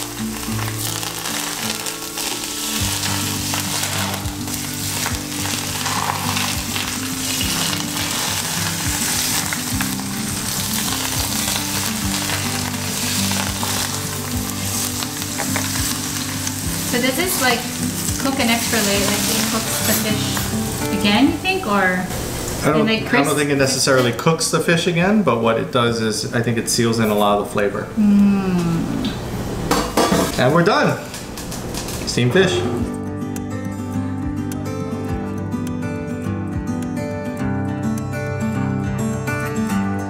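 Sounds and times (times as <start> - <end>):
hot oil sizzling: 0.0 - 23.8.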